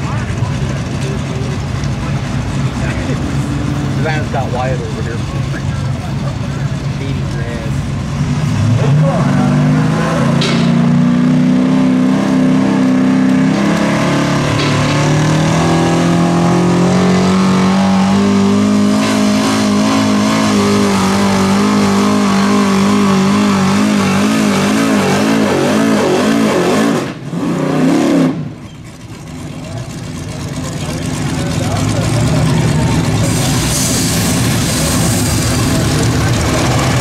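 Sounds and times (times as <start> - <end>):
truck engine at full throttle: 0.0 - 37.0.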